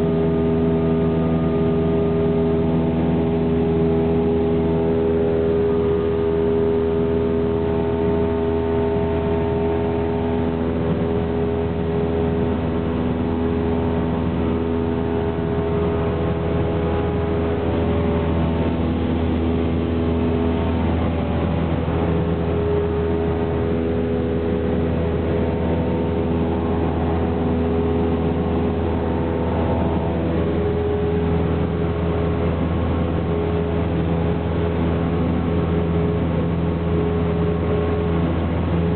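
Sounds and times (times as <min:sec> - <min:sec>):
light aircraft engine drone: 0:00.0 - 0:38.9.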